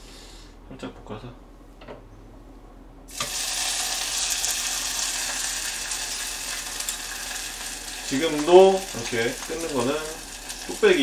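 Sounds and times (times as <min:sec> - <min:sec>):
meat sizzling in a hot pot: 0:03.1 - 0:11.0.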